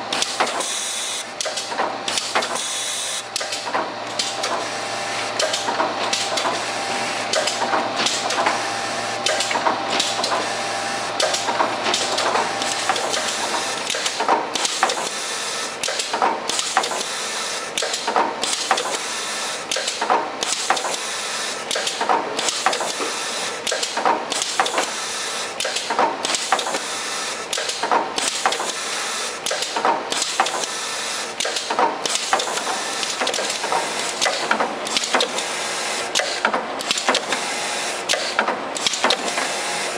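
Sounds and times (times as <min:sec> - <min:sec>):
machine mechanical clatter: 0:00.1 - 0:08.6, 0:09.2 - 0:39.9
sharp mechanical clack: 0:01.4 - 0:02.7, 0:03.3 - 0:04.6, 0:05.4 - 0:06.6, 0:07.3 - 0:08.6, 0:09.2 - 0:10.5, 0:11.2 - 0:15.2, 0:15.8 - 0:17.1, 0:17.7 - 0:19.0, 0:19.6 - 0:21.0, 0:21.6 - 0:25.0, 0:25.6 - 0:26.9, 0:27.5 - 0:28.8, 0:29.4 - 0:35.5, 0:36.1 - 0:37.4, 0:38.1 - 0:39.5.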